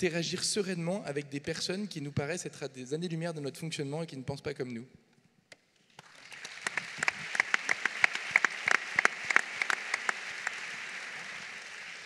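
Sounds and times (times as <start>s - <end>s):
audience clapping: 5.9s - 12.0s
sharp close hand claps: 5.9s - 12.0s.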